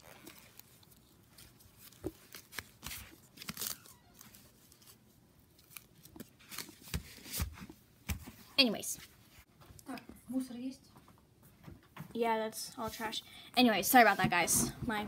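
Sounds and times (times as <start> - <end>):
hands handling plastic doll: 0.0 - 8.5.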